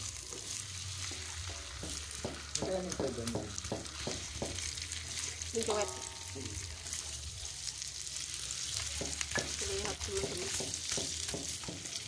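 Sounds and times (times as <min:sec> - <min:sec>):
food sizzling in a wok: 0:00.0 - 0:12.0
spatula clacking against metal: 0:08.8 - 0:12.0.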